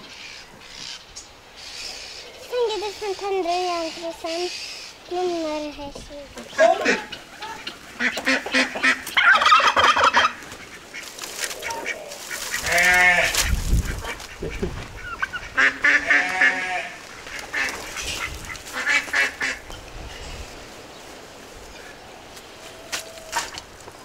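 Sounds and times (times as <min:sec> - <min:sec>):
poultry calling: 0:06.4 - 0:20.4.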